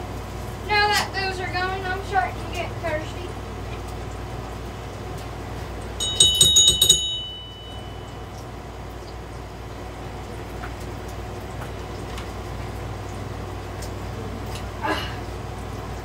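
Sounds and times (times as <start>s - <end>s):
steady low hum: 0.0s - 16.0s
high-pitched metallic ringing: 6.0s - 8.6s.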